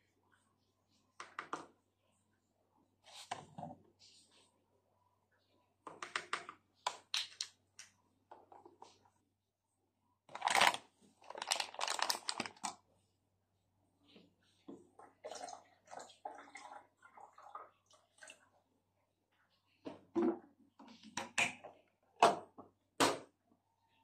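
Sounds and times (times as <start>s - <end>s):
foil bag crinkling: 10.3s - 12.8s.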